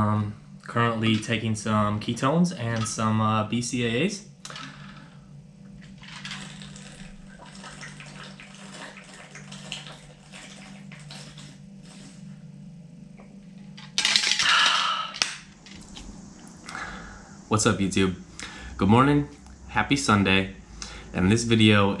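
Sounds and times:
person's voice: 0.0 - 4.2
liquid sloshing in bottle: 5.8 - 12.2
person gulping: 6.2 - 8.0.

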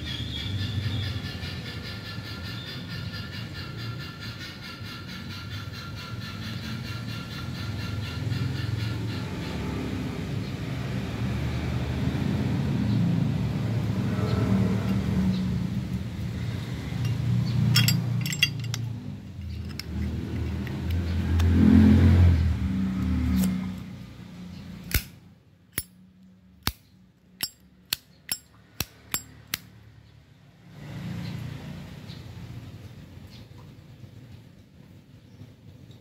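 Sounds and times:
light metallic clinks: 17.0 - 20.6, 27.4 - 27.7, 28.3 - 29.4.

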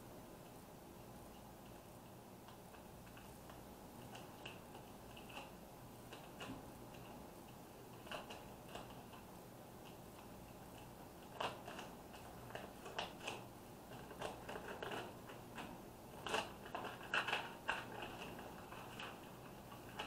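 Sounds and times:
plastic sheet crinkling: 10.7 - 20.0.

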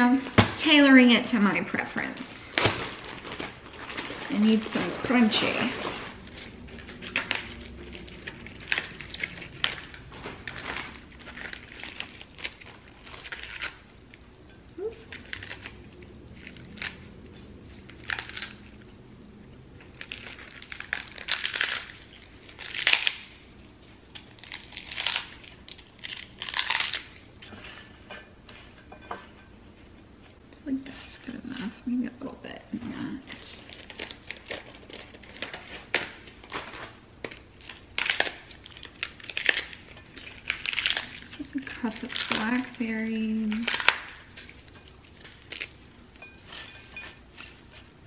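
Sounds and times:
lettuce leaves tearing: 1.7 - 14.0, 14.8 - 18.9, 19.8 - 27.9, 33.1 - 47.9.

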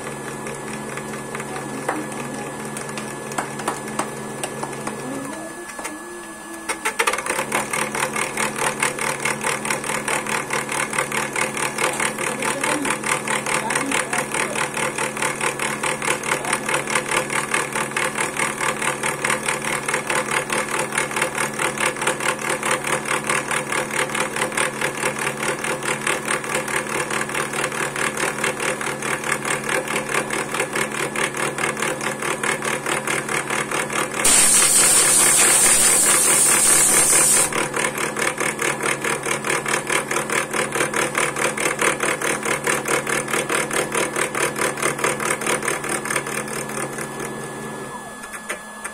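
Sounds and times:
milling machine motor whine: 0.0 - 25.4, 28.7 - 48.9
loud hiss: 34.3 - 37.5.

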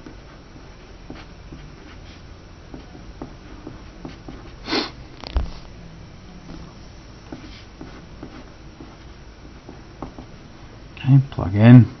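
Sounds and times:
breathy sniff or exhale: 4.6 - 5.6
pencil writing on paper: 6.5 - 10.4.

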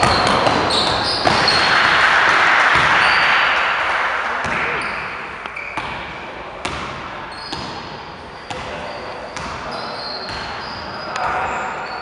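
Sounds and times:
basketball bouncing on gym floor: 0.0 - 1.6, 4.4 - 11.4
sneakers squeaking on court: 0.0 - 1.7, 4.8 - 12.0.

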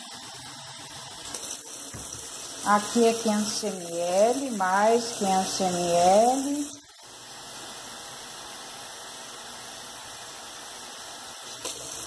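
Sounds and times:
water pouring into a bucket: 11.3 - 12.0.

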